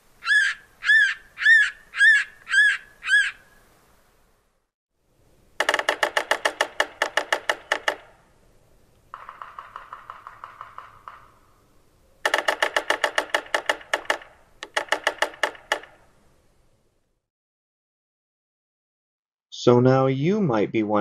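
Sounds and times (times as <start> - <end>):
woodpecker drumming on wood: 5.6 - 8.2, 9.1 - 11.6, 12.2 - 16.1.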